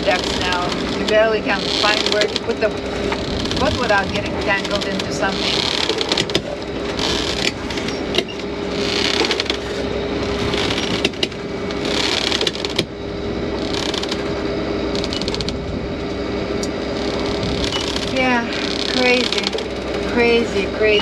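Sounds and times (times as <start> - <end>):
rigging clicking and knocking: 0.0 - 13.0, 16.6 - 20.2
boat engine hum: 0.0 - 21.0.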